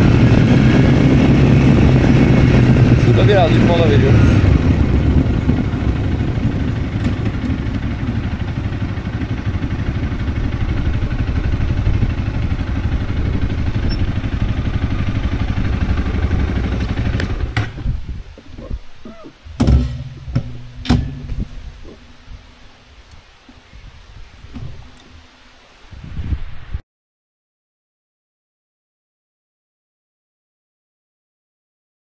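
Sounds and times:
motorcycle engine running: 0.0s - 23.1s, 24.5s - 25.3s
sharp knocks: 19.6s - 22.0s.

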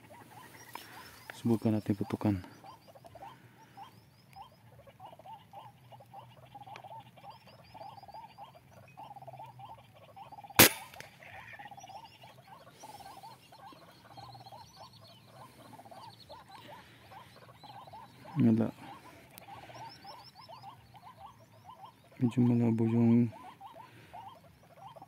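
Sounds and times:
animal calls: 0.0s - 25.0s
rifle shot: 10.6s - 11.2s.

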